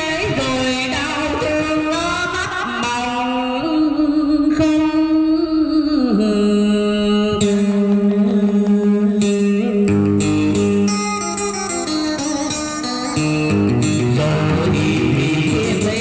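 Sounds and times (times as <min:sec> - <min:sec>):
man singing into a microphone: 0:00.0 - 0:11.3, 0:11.9 - 0:16.0
electric guitar: 0:00.0 - 0:16.0.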